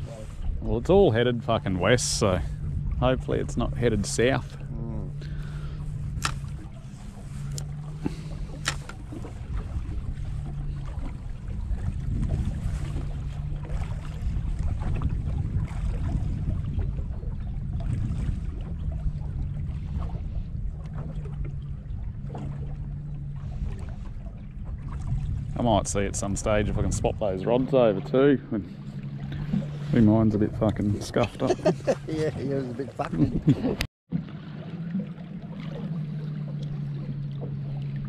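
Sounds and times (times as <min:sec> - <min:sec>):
wind rumble on microphone: 0:00.0 - 0:38.0.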